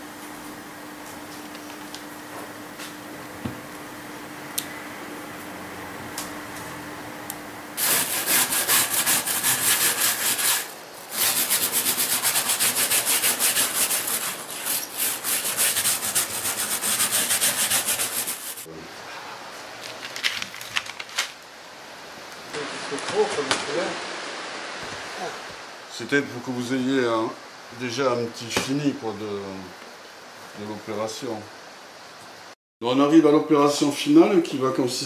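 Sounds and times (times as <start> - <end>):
hand scrubbing glass panel: 7.8 - 18.7.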